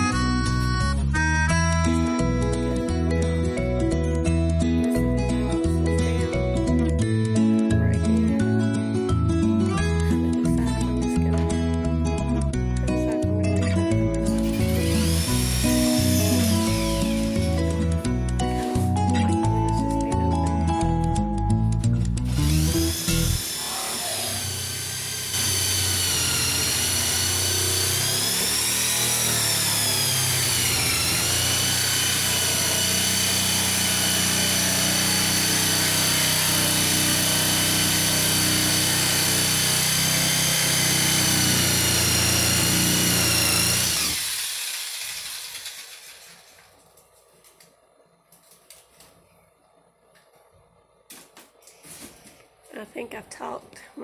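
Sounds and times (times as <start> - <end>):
power tool whining: 14.0 - 19.7, 22.0 - 46.8.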